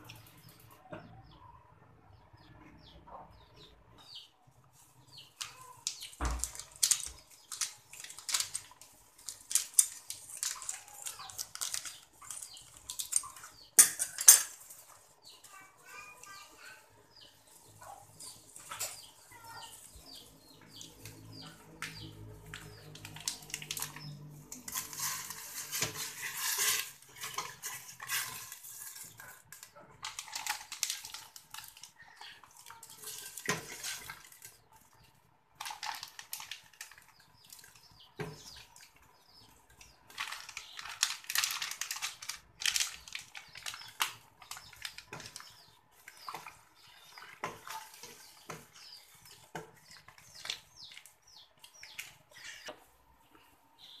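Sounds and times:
spoon clinking and scraping pot: 9.5 - 14.9, 24.5 - 30.1.

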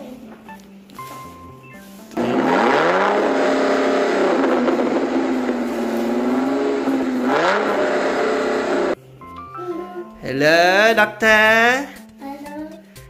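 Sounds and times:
car engine revving: 2.2 - 9.0.

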